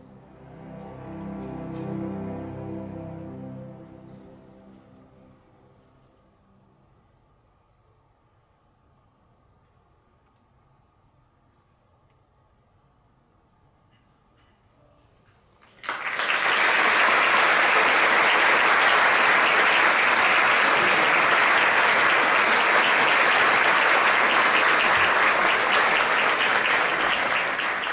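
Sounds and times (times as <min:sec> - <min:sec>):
audience applause: 0:15.6 - 0:27.9.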